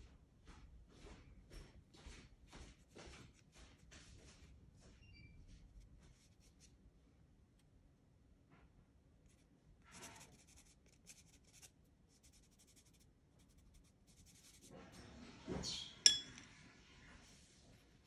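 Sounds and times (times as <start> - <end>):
pastel stick scratching on paper: 9.2 - 15.1.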